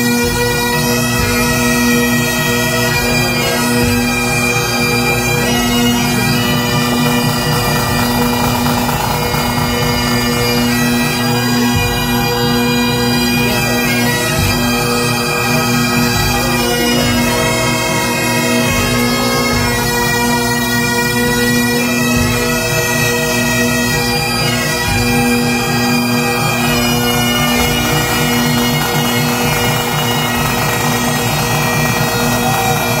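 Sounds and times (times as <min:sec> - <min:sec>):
bagpipe band playing: 0:00.0 - 0:33.0.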